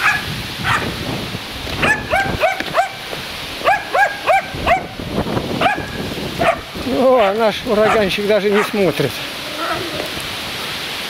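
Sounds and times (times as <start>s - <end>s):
dog barking: 0.0s - 1.0s, 1.8s - 3.0s, 3.6s - 5.0s, 5.6s - 8.9s.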